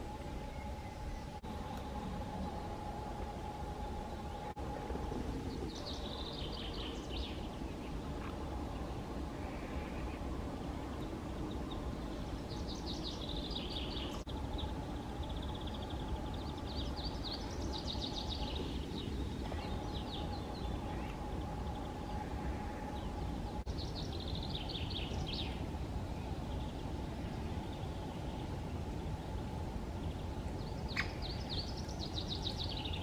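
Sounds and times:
low forest hum: 0.0s - 33.0s
songbird trilling: 30.6s - 33.0s.

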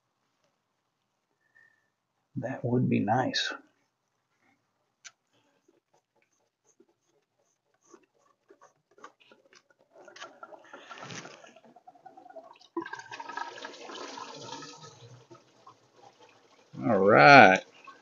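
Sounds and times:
coolant pouring and splashing: 9.0s - 18.0s.

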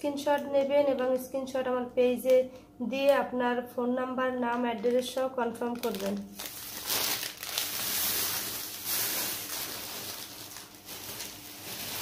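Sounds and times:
plastic packet crinkling: 4.5s - 12.0s.

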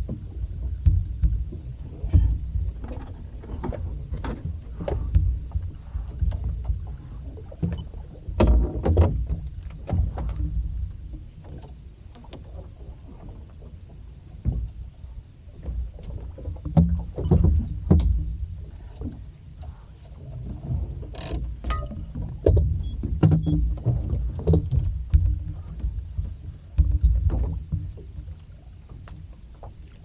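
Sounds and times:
gear knocking against boat: 0.0s - 12.4s, 15.6s - 19.3s, 20.4s - 30.0s
water: 0.0s - 30.0s
wind: 0.0s - 30.0s.

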